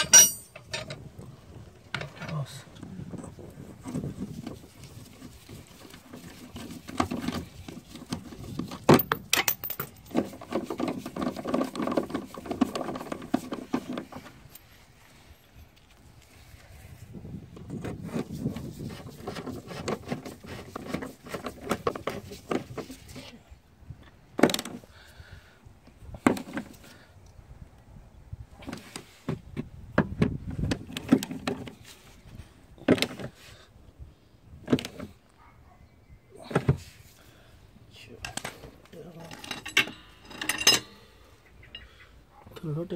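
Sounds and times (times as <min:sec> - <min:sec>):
sharp metallic knocks: 0:00.0 - 0:00.8.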